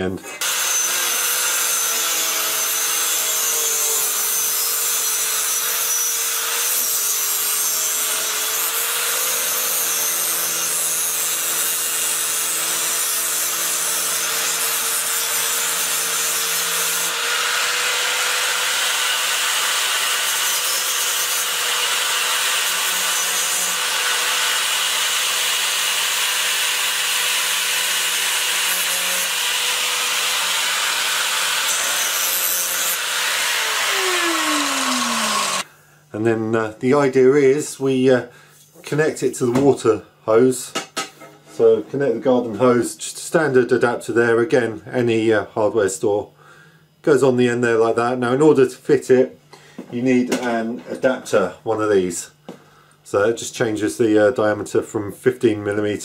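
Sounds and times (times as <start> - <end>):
angle grinder cutting pipe: 0.3 - 35.7.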